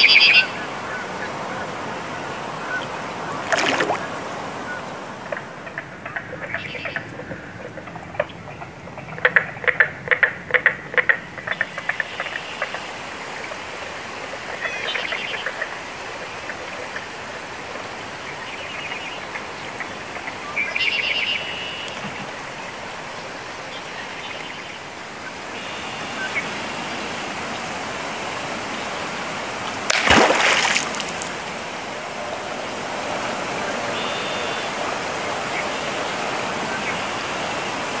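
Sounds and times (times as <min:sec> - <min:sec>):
running water: 0:00.4 - 0:05.7, 0:12.1 - 0:38.0
loud splash: 0:03.4 - 0:04.3, 0:29.8 - 0:31.5
short bird calls: 0:20.6 - 0:22.2, 0:33.9 - 0:34.8.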